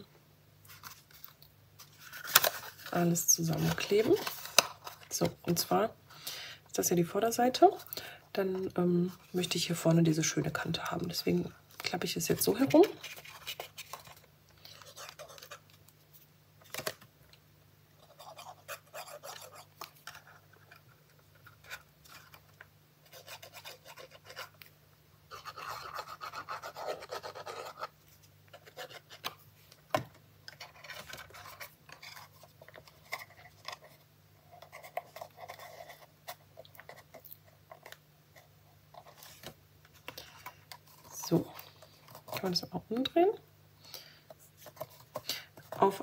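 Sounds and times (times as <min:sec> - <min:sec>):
faint steady hum: 0:00.0 - 0:46.0
paper rubbing and scratching: 0:12.6 - 0:15.6, 0:23.0 - 0:24.6, 0:25.3 - 0:27.9, 0:30.6 - 0:39.5.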